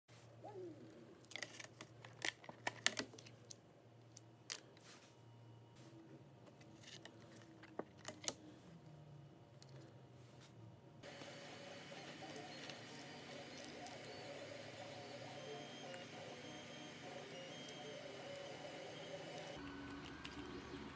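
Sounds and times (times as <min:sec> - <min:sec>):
plastic clicks and crackles: 0:01.2 - 0:04.7.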